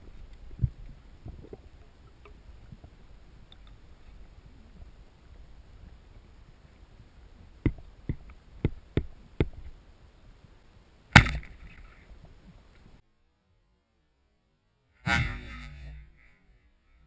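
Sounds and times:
speargun firing crack underwater: 11.1s - 11.8s.

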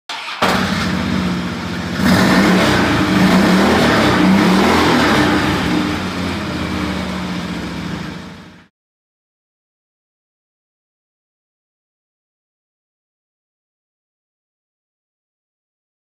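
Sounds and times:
engine revving: 0.1s - 8.7s.

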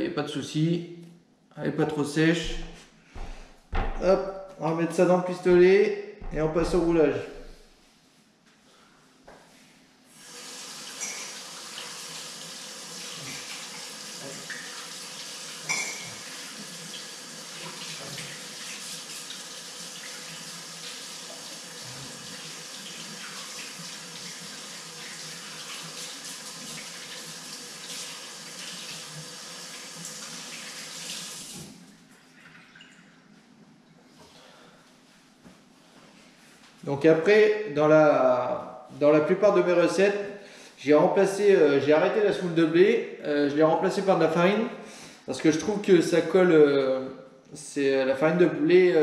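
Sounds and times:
tap water running: 10.2s - 33.0s.

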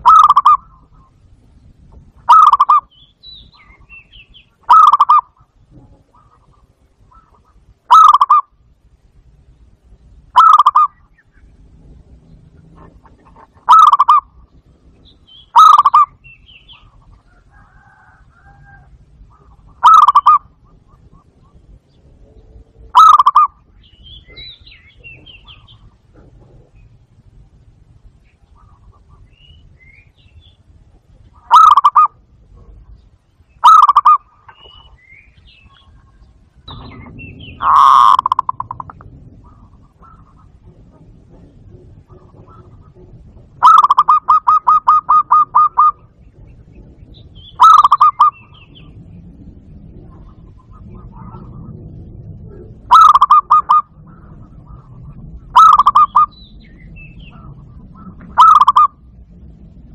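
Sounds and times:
dove cooing in rolling pulses: 0.0s - 59.9s
high bird chirps: 13.7s - 14.3s, 23.0s - 25.9s, 33.4s - 40.5s, 43.6s - 49.3s, 55.6s - 59.0s.

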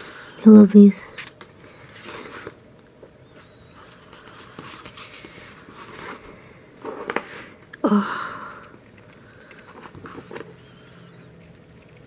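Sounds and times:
paper pages rustling: 1.1s - 2.6s, 3.4s - 7.6s, 9.4s - 12.0s.

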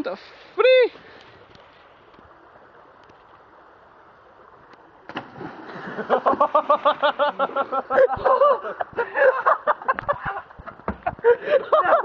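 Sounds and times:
stream rushing: 0.0s - 12.0s
person splashing into water: 5.1s - 7.6s
person laughing rapidly: 6.1s - 12.0s.

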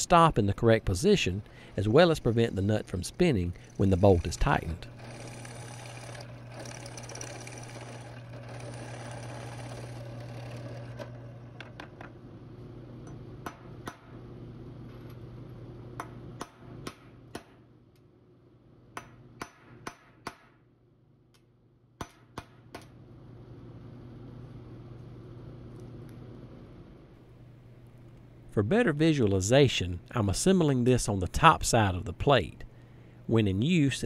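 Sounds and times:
drill press cutting steel: 1.4s - 11.5s.

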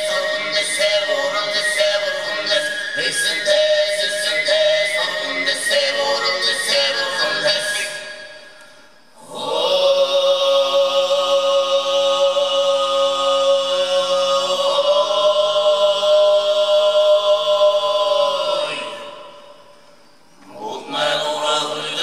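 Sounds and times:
throat singing drone with overtone: 0.0s - 22.0s.

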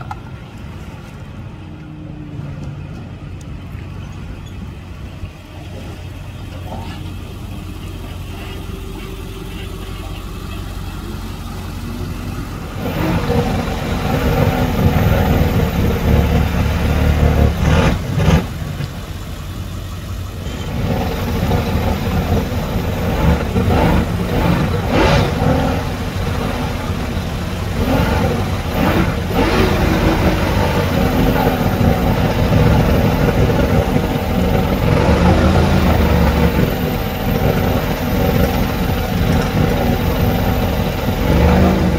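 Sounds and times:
outboard motor revving: 5.0s - 41.9s.

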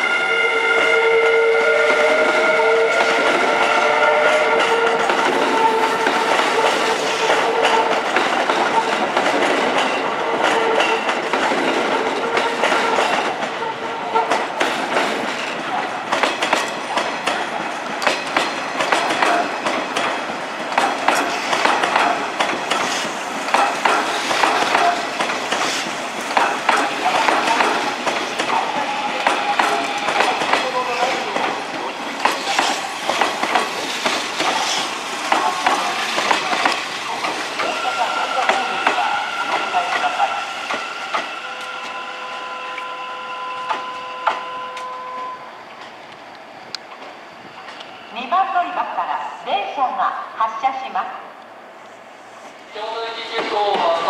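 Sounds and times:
train wheels clattering: 0.7s - 42.1s.

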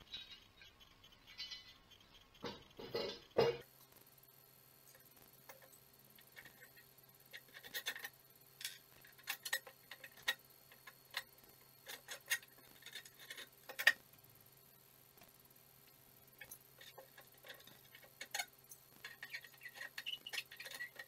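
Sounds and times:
metal parts knocking on plywood: 2.4s - 3.7s.

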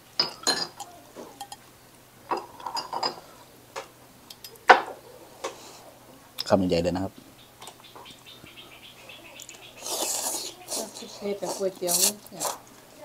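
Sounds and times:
spoon and chopsticks clinking bowl: 0.2s - 1.6s.

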